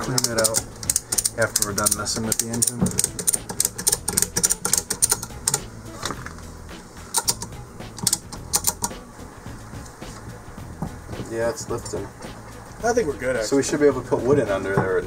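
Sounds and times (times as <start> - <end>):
ratchet clicking: 0.0 - 5.6, 7.1 - 9.0.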